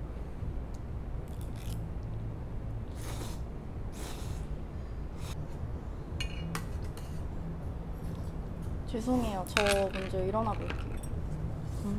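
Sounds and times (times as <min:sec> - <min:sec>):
low room hum: 0:00.0 - 0:11.9.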